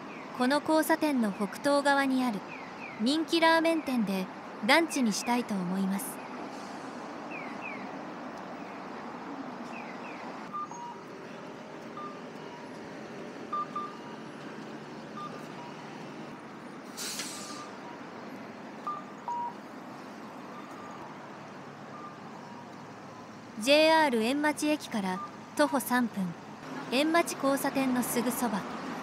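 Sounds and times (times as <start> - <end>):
city traffic: 0.0 - 29.0
short electronic beeps: 10.5 - 11.1, 12.0 - 12.8, 13.5 - 14.1, 15.2 - 15.9, 18.8 - 19.6, 25.1 - 25.9
loud burst of hiss: 16.9 - 17.7.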